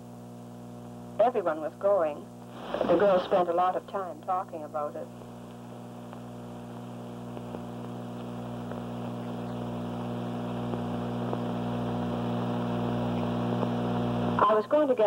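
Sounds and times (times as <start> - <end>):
electrical hum: 0.0 - 15.0
faint film crackles: 0.1 - 1.2, 1.8 - 14.4.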